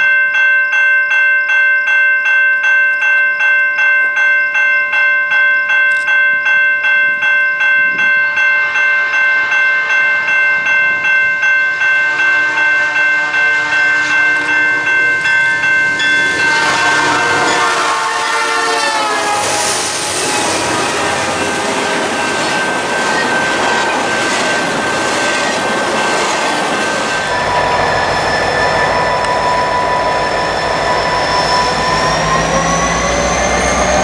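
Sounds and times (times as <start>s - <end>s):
railroad crossing bell ringing: 0.0s - 34.0s
train rumbling over rails: 7.8s - 34.0s
locomotive air horn: 11.8s - 15.0s, 16.3s - 22.2s.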